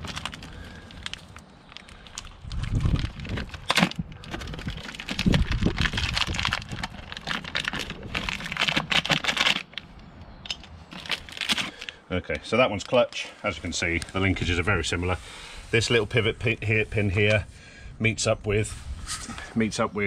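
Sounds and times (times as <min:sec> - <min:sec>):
plastic packaging crinkling: 0:00.0 - 0:10.0, 0:10.6 - 0:12.0.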